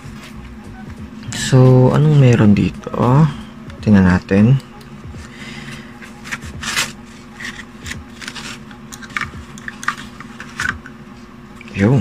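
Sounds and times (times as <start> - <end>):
steady low hum: 0.0 - 12.0
mouse cable rustling and scraping: 6.1 - 10.9.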